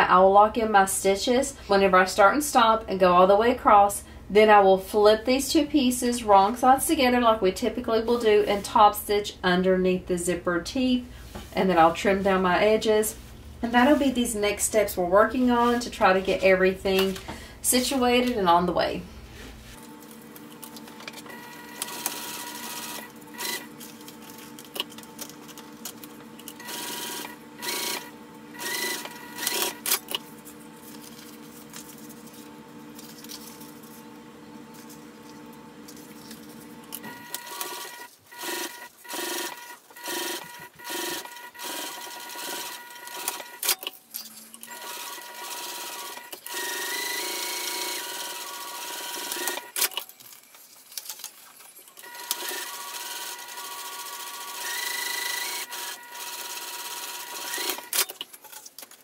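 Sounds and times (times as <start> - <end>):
sewing machine stitching: 21.3 - 23.8, 26.5 - 30.2, 36.9 - 43.9, 44.6 - 50.0, 52.0 - 58.6.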